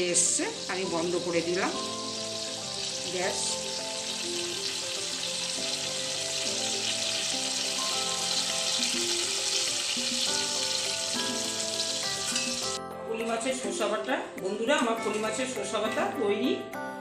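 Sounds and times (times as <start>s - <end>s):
gravy sizzling in a pan: 0.0s - 12.8s
background music with held notes: 0.0s - 17.0s.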